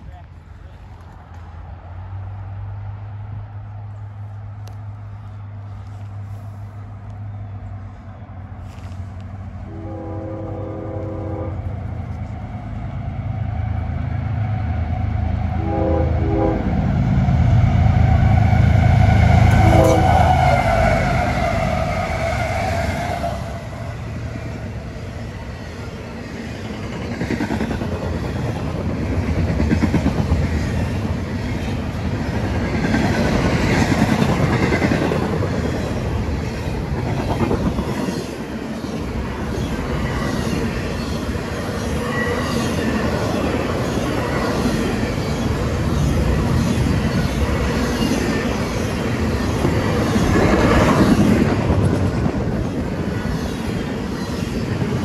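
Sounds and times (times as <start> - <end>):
diesel locomotive engine rumble: 0.0 - 55.0
rail rumble and wheel clatter: 0.0 - 55.0
train horn blasts: 9.6 - 11.7, 15.5 - 16.8, 18.4 - 21.0.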